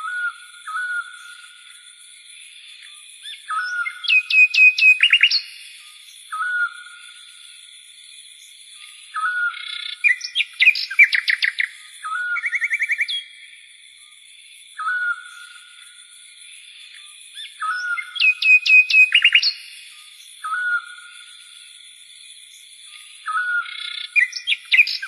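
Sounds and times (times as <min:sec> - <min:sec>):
bird whistled calls: 0:00.0 - 0:01.5, 0:03.2 - 0:05.7, 0:06.3 - 0:06.9, 0:09.1 - 0:13.3, 0:14.8 - 0:15.6, 0:17.4 - 0:19.8, 0:20.4 - 0:21.0, 0:23.2 - 0:25.0
rapid bird chirps: 0:03.2 - 0:05.7, 0:09.1 - 0:13.4, 0:16.9 - 0:21.6, 0:22.5 - 0:25.0.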